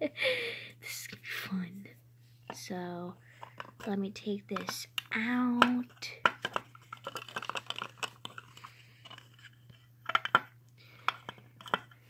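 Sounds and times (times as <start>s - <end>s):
plastic toy pieces clicking: 4.6s - 9.2s, 10.1s - 12.0s.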